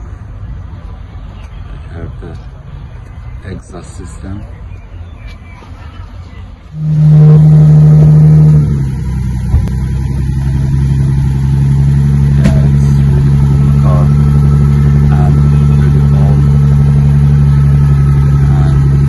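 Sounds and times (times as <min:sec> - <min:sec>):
car engine idling: 0:06.6 - 0:19.0
sharp knocks: 0:12.4 - 0:12.7.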